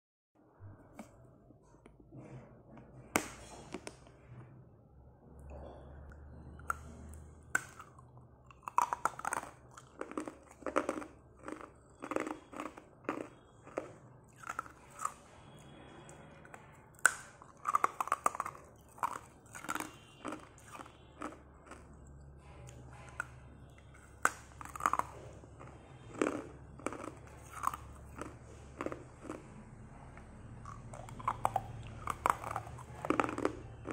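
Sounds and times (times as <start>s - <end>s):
ice crunching between teeth: 7.5s - 15.2s, 17.0s - 22.0s, 24.1s - 29.5s, 30.7s - 33.9s.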